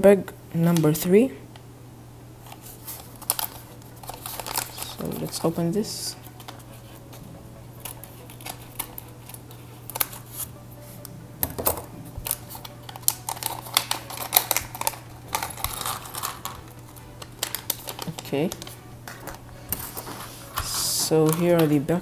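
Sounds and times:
foil bag crinkling: 2.5s - 7.2s, 7.8s - 10.5s, 12.1s - 22.0s
scissors snipping foil: 2.5s - 7.2s, 7.8s - 21.9s
plastic pieces tumbling onto plastic: 2.6s - 5.6s, 11.4s - 21.8s.

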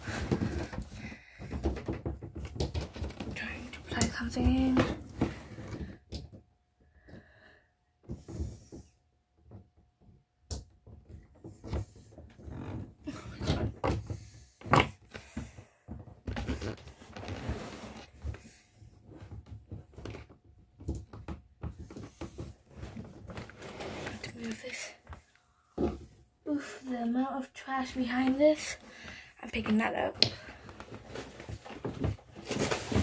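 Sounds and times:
knocks and bumps: 0.0s - 6.4s.

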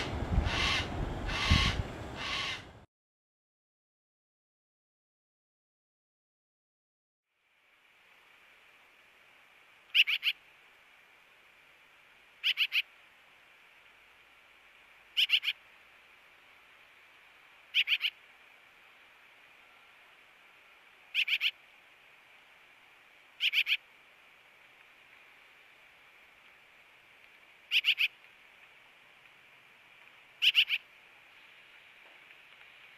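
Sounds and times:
magpie calling: 0.0s - 2.7s, 9.9s - 10.4s, 12.4s - 12.9s, 15.2s - 15.6s, 17.7s - 18.2s, 21.1s - 21.6s, 23.4s - 23.8s, 27.7s - 28.2s, 30.4s - 30.9s
faint hiss: 7.3s - 32.9s.

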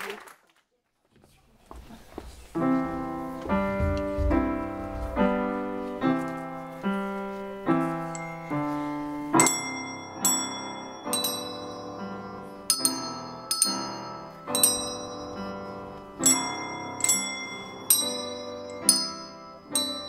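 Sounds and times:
piano chords: 2.6s - 20.0s
high bell-like notes: 7.8s - 20.0s.

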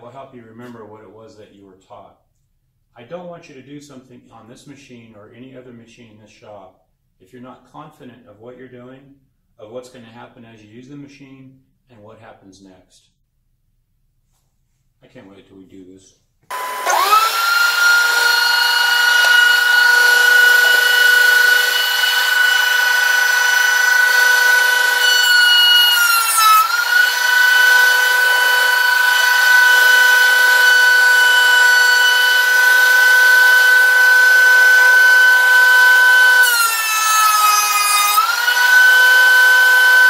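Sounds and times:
board cutting through planer: 16.5s - 40.0s
thickness planer motor whine: 16.5s - 40.0s.

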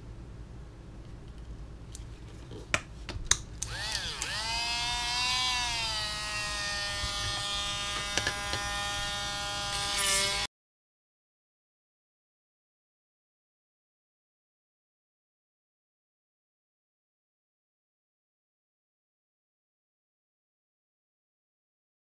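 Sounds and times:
sharp clicks: 3.3s - 4.4s
small electric motor whine: 3.6s - 10.5s.

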